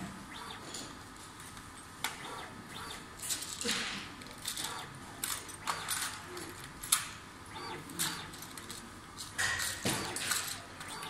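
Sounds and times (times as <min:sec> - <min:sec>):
robot clicks: 0:00.3 - 0:00.9, 0:02.0 - 0:03.4, 0:04.4 - 0:08.8, 0:09.9 - 0:11.0.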